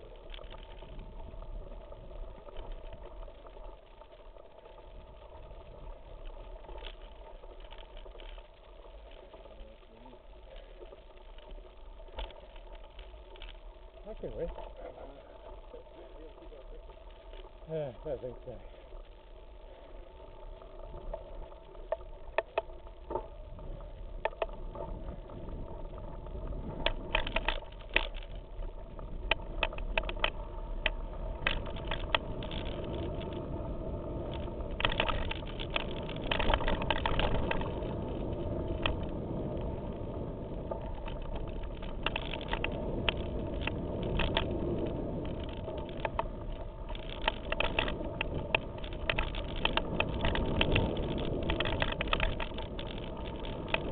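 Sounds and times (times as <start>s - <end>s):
bike tyres rumbling on gravel: 0.0s - 53.9s
bike clattering over rocks: 34.3s - 38.0s, 41.0s - 53.9s.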